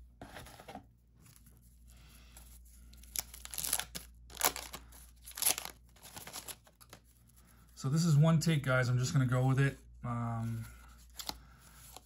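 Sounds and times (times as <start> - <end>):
wax paper wrapper tearing: 3.0 - 7.0.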